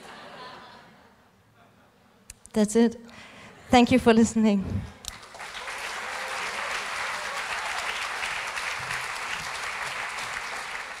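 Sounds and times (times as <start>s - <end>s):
crowd applauding: 5.1s - 11.0s.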